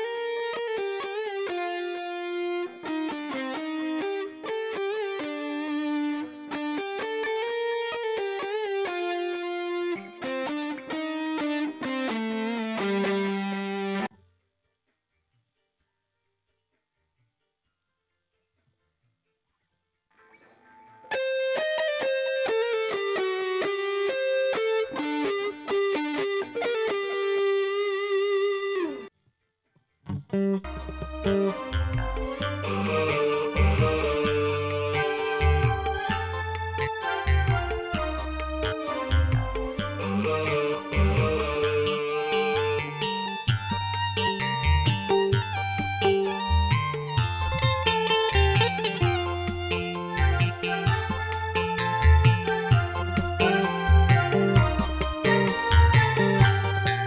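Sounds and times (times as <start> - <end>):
distorted electric guitar solo: 0.0 - 14.1, 20.2 - 29.1, 30.1 - 57.0
instrumental music with vibrato lead: 30.6 - 57.0.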